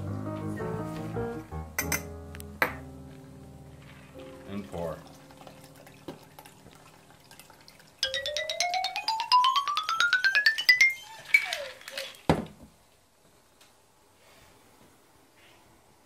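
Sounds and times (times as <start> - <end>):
liquid pouring into glass: 4.8 - 8.2.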